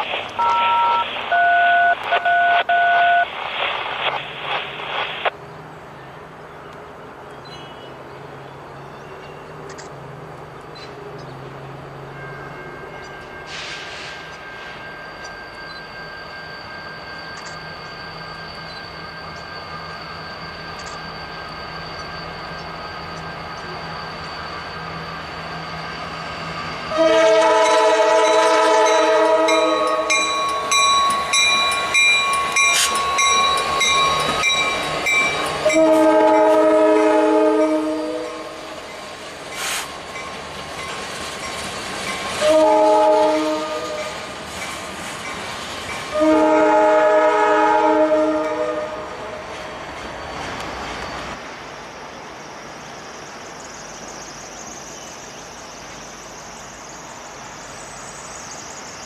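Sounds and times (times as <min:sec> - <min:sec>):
regular clicking of train wheels: 0:09.2 - 0:26.9, 0:27.6 - 0:36.6, 0:38.8 - 0:46.2, 0:49.3 - 0:59.0
high ringing tones: 0:11.6 - 0:39.2
locomotive air horn: 0:26.9 - 0:30.3, 0:35.6 - 0:38.7, 0:42.4 - 0:44.2, 0:46.1 - 0:49.3.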